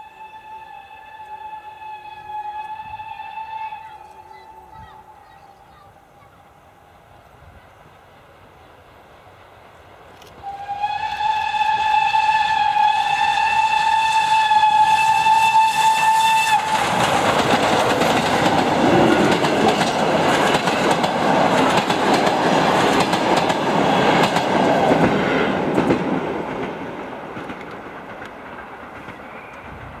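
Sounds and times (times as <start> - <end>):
steam locomotive whistle: 0.0 - 5.7, 10.3 - 17.4
train passing close by: 0.0 - 30.0.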